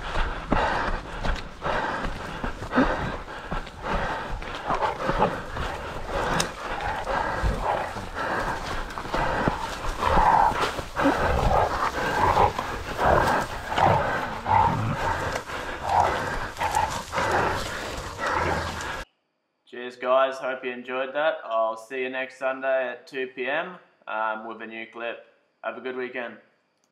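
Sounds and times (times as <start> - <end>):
dogs making noises: 0.6 - 19.0.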